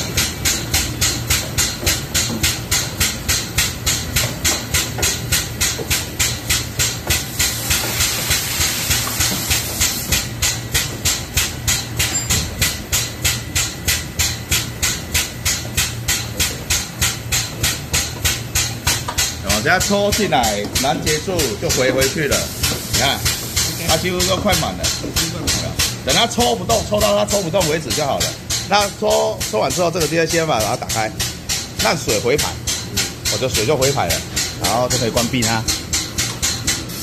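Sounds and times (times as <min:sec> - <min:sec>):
vacuum hose pulsing hiss: 0:07.1 - 0:10.2.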